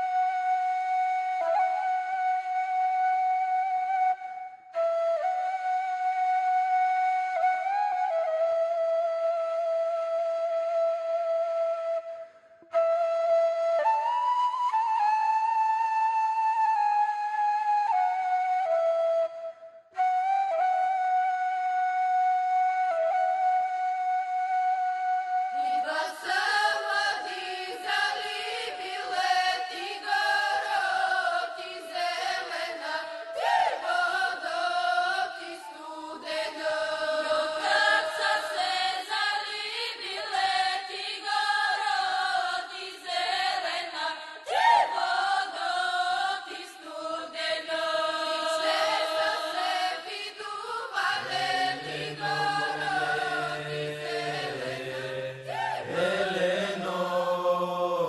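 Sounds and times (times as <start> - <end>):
women singing folk song: 25.6 - 57.2.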